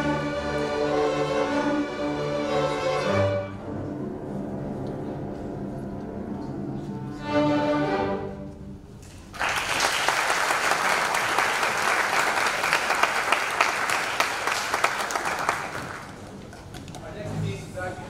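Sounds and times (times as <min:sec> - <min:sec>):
audience applause: 0:09.3 - 0:16.4.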